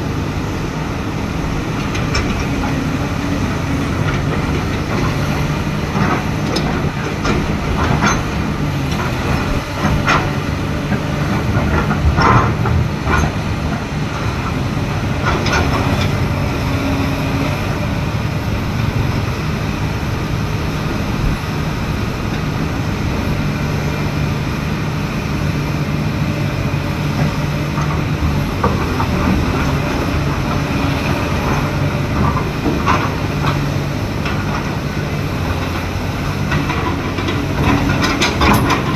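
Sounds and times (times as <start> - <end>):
excavator diesel engine: 0.0 - 38.9
metallic clanks and knocks: 3.6 - 16.2, 35.5 - 38.9.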